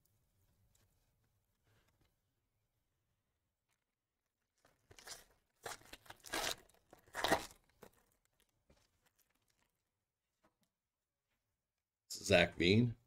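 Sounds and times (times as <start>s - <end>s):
foil crinkling: 4.6s - 9.9s
foil wrapper tearing: 4.7s - 8.5s.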